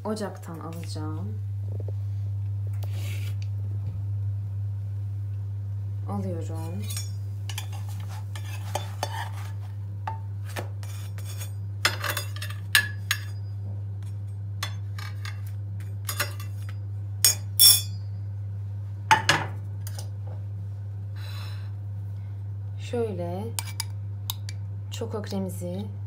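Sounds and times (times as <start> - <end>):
low hum: 0.0 - 8.2.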